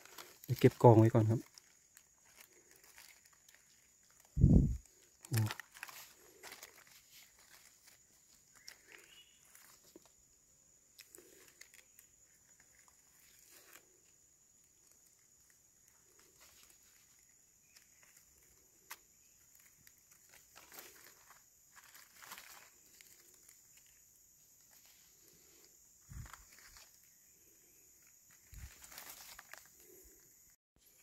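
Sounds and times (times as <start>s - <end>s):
steps in dry leaf litter: 0.0s - 10.1s, 15.8s - 27.2s, 28.3s - 30.2s.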